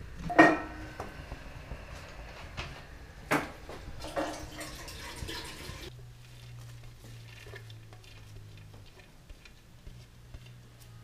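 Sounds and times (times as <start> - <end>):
steady low hum: 0.0 - 11.0
spoon stirring thick sauce: 6.7 - 10.6.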